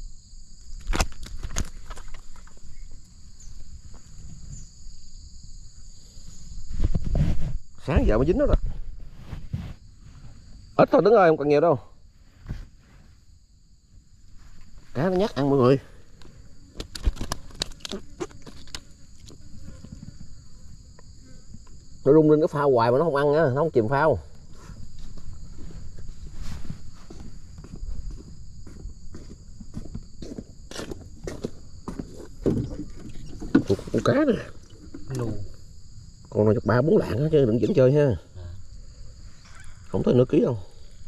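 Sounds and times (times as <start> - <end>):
crickets buzzing: 0.0 - 41.0
insects droning: 0.0 - 41.0
fish flopping on concrete: 16.8 - 19.4.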